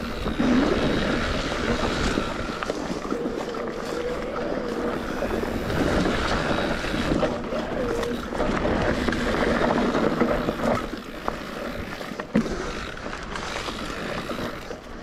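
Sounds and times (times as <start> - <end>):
wind noise on microphone: 0.0 - 12.9
bike rattling: 0.0 - 15.0
bike tyres rolling over dirt: 0.0 - 15.0.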